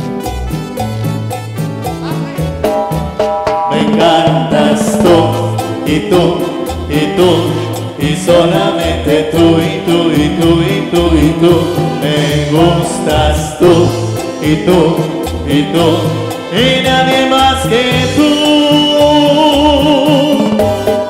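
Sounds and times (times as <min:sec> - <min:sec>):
live latin band: 0:00.0 - 0:21.0.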